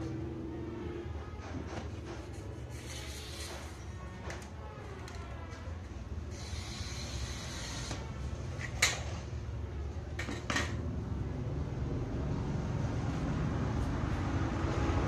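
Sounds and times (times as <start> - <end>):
glass cutter scoring glass: 2.7 - 3.9, 6.3 - 8.8.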